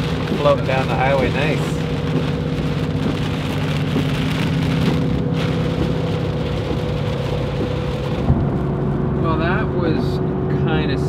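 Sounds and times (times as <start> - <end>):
tyre spray on wet road: 0.0 - 9.1
heavy rain drumming on car: 0.0 - 10.0
car engine droning: 0.0 - 11.0.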